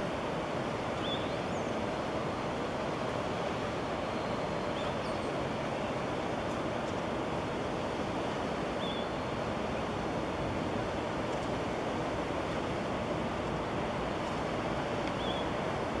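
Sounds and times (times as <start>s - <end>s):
faint high chirp: 1.0s - 1.7s, 8.8s - 9.2s, 15.2s - 15.5s.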